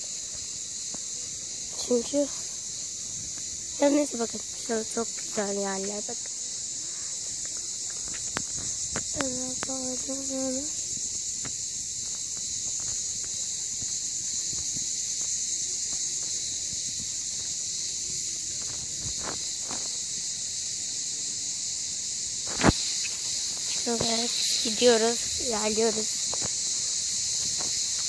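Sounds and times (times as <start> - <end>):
cicadas chorus: 0.0 - 28.0
faint footsteps: 7.2 - 17.6, 22.5 - 28.0.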